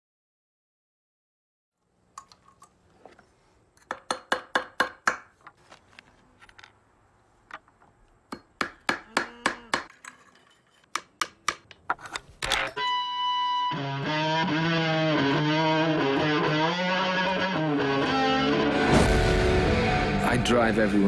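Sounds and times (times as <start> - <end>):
hammer driving nails into wood: 3.8 - 5.5, 8.3 - 9.9, 10.9 - 12.5.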